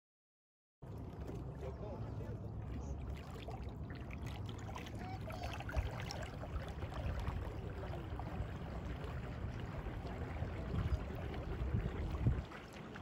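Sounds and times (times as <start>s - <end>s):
water lapping against shore: 0.8s - 13.0s
wind buffeting microphone: 5.0s - 13.0s.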